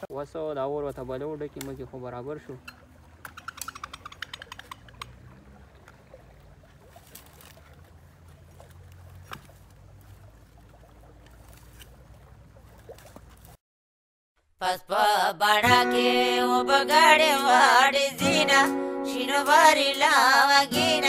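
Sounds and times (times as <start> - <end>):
twigs crackling and clicking: 0.9 - 1.9, 2.6 - 5.2.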